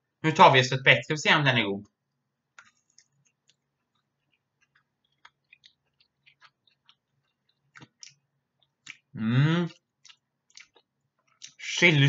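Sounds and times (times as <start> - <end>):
wet mouth clicks chewing: 2.6 - 9.1, 9.7 - 11.6.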